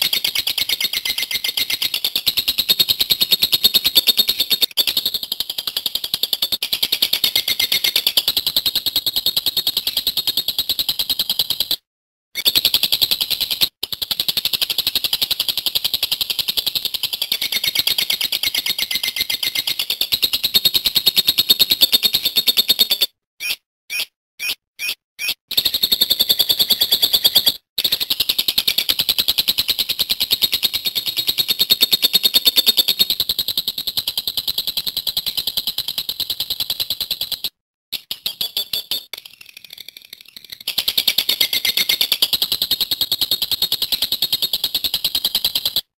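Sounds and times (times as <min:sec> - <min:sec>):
lovebird chattering trill: 0:00.0 - 0:05.2.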